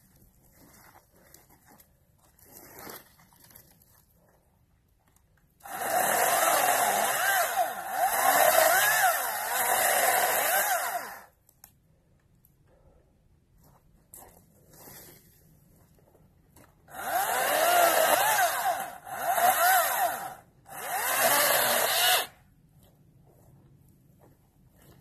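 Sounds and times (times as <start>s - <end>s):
electric chainsaw cutting wood: 5.6s - 11.3s, 16.9s - 22.3s.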